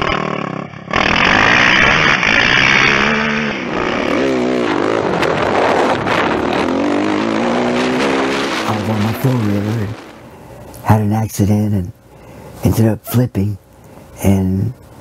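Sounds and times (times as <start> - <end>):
quad engines revving: 0.0 - 10.2.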